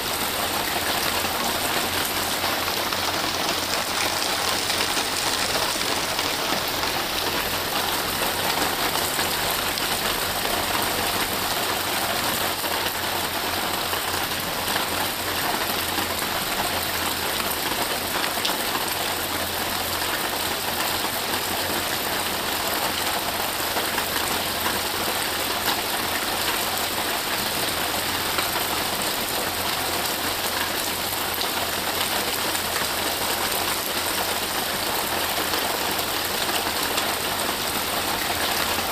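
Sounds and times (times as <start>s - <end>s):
rain falling on grass and trees: 0.0s - 38.9s.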